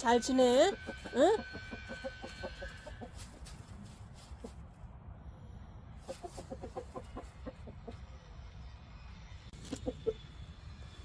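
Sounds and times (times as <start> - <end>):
chickens clucking: 0.5 - 3.6, 6.0 - 8.3, 9.6 - 10.3.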